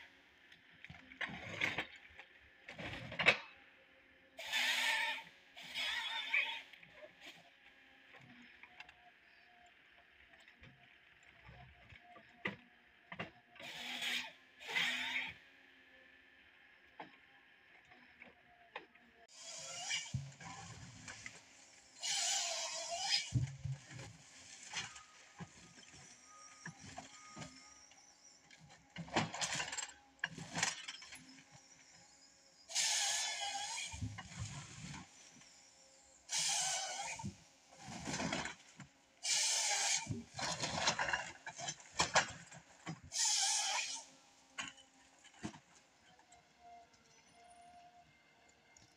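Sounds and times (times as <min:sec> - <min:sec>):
saw cutting through log: 0:04.4 - 0:07.4, 0:13.6 - 0:15.4, 0:19.3 - 0:28.0, 0:32.7 - 0:35.4, 0:36.0 - 0:38.6, 0:39.2 - 0:42.5, 0:43.1 - 0:44.8
chain saw cutting log: 0:13.6 - 0:15.4, 0:19.3 - 0:21.4, 0:22.0 - 0:23.4, 0:36.3 - 0:38.6, 0:39.2 - 0:42.4, 0:43.1 - 0:44.1.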